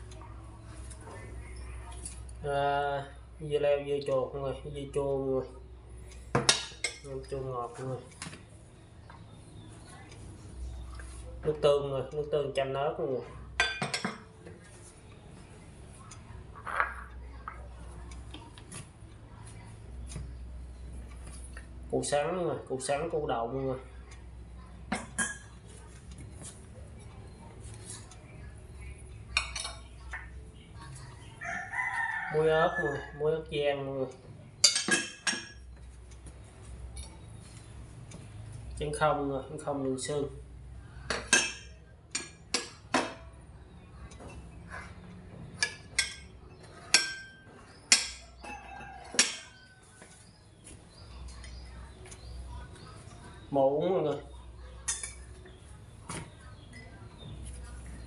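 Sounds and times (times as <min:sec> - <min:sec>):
ceramic dishes clinking: 0:13.6 - 0:14.3, 0:16.6 - 0:17.6, 0:24.9 - 0:25.6, 0:34.6 - 0:35.8, 0:41.1 - 0:43.3, 0:45.6 - 0:49.8, 0:54.8 - 0:55.6.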